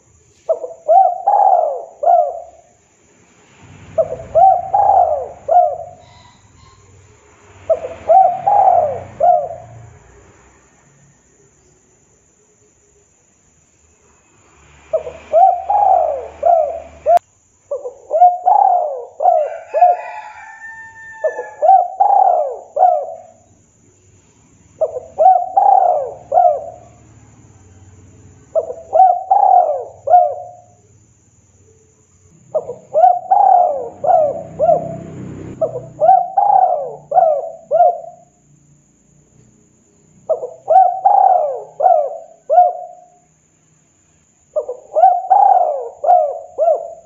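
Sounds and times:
dove cooing: 0.0 - 2.8, 3.9 - 7.1, 7.7 - 10.0, 14.9 - 23.5, 24.8 - 27.2, 28.5 - 30.8, 32.5 - 38.4, 40.2 - 43.2, 44.5 - 47.0.

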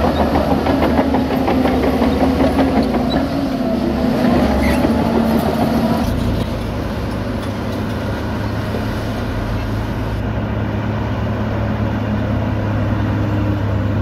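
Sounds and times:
bulldozer diesel engine under load: 0.0 - 14.0
dump truck diesel engine hum: 0.0 - 14.0.

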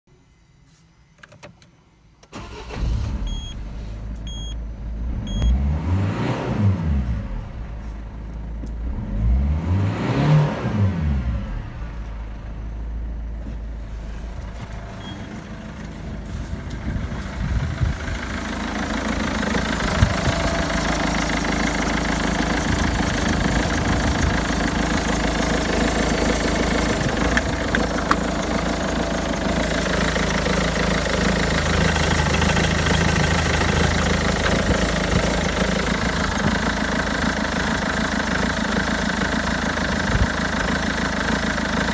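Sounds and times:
diesel engine starting and idling: 2.2 - 41.9
dashboard warning beeps: 3.2 - 3.6, 4.2 - 4.6, 5.3 - 5.6, 15.0 - 15.3.

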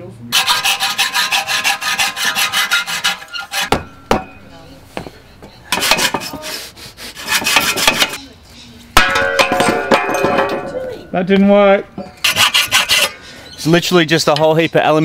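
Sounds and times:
hacksaw sawing through metal fins: 0.3 - 3.8, 5.7 - 6.5, 7.1 - 8.2, 12.1 - 13.3
knocks: 3.6 - 4.4.

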